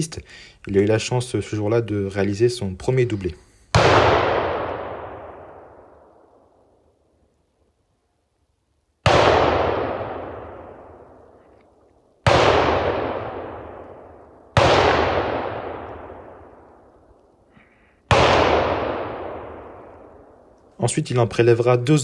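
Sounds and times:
rifle shots echoing: 3.7 - 6.4, 9.0 - 11.4, 12.2 - 17.2, 18.1 - 20.6.

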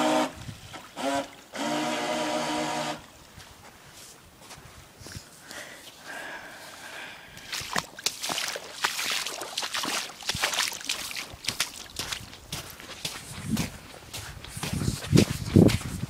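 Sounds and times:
shallow water sloshing and splashing: 7.4 - 13.1.

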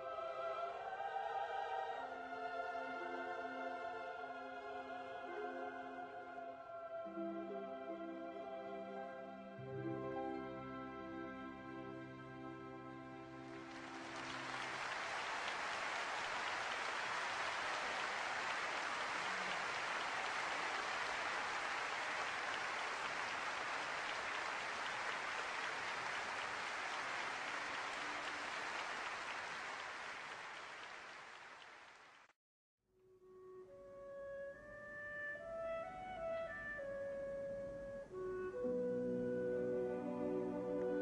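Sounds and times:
audience applauding: 13.4 - 32.3.

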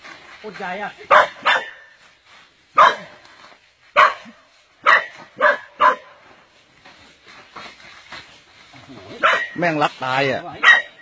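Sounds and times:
dog barking: 1.1 - 1.9, 2.8 - 3.2, 3.9 - 6.2, 9.1 - 9.6, 10.6 - 11.0.

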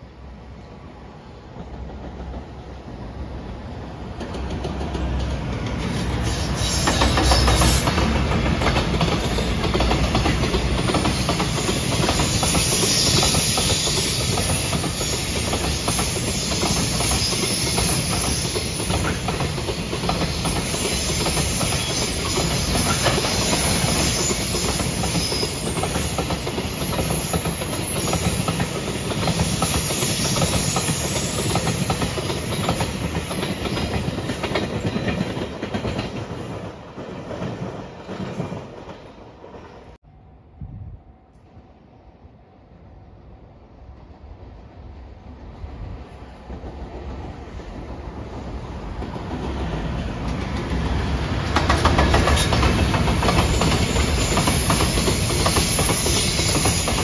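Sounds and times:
freight train passing: 0.0 - 57.0
wheels clicking over rail joints: 49.0 - 57.0.

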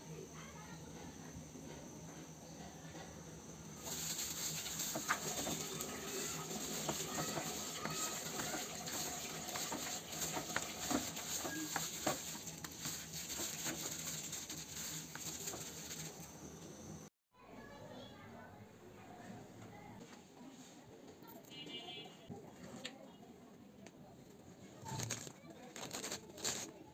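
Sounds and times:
gloved hand squishing fish paste: 3.9 - 15.7.

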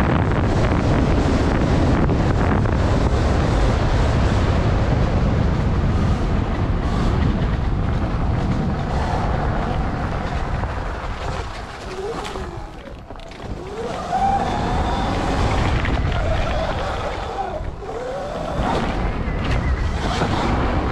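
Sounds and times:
wind noise on microphone: 0.0 - 20.9
motorbike motor revving: 11.8 - 20.9.

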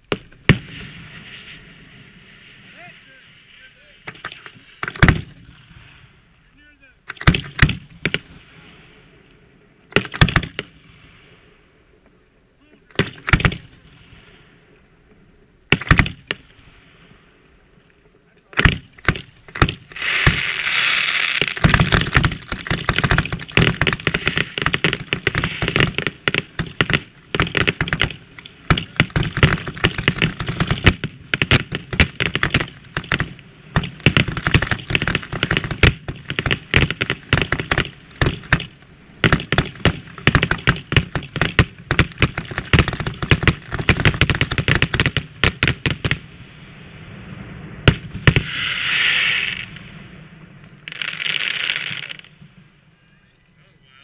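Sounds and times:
fireworks bangs and crackling: 0.0 - 6.3, 7.1 - 11.6, 12.9 - 17.6, 18.2 - 52.9
firework hiss: 0.4 - 6.3, 18.9 - 41.4, 42.0 - 52.6.

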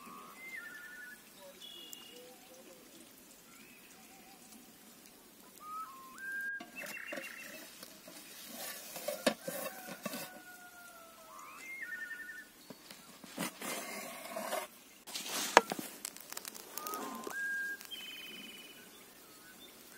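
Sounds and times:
birds whistling: 0.0 - 2.7, 5.6 - 7.7, 11.2 - 13.3, 16.7 - 19.8
metal spatula scraping a pan: 6.6 - 10.5, 13.2 - 15.8.

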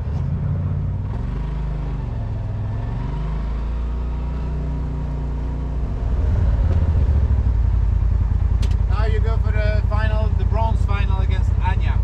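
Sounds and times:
race car engine running: 5.8 - 12.0.

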